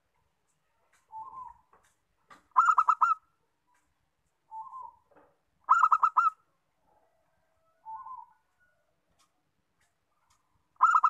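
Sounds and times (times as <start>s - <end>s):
dove cooing: 2.5s - 3.2s, 5.7s - 6.4s, 7.8s - 8.4s, 10.8s - 11.0s.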